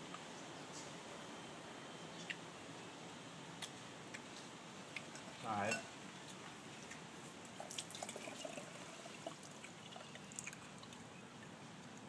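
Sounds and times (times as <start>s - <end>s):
water trickling into a glass: 7.6s - 11.2s.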